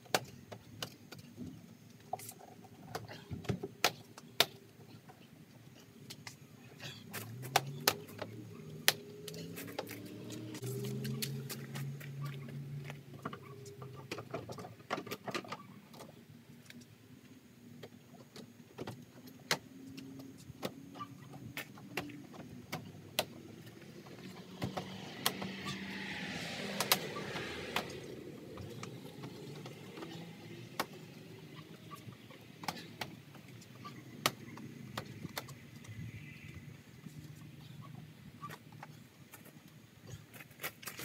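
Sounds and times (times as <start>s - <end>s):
vehicle passing: 7.0s - 14.2s, 20.0s - 35.0s.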